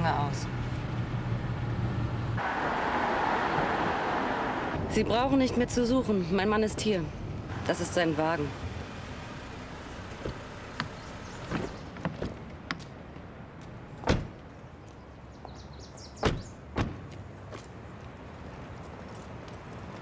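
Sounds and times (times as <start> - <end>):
door slamming: 14.0 - 14.4, 16.2 - 17.0.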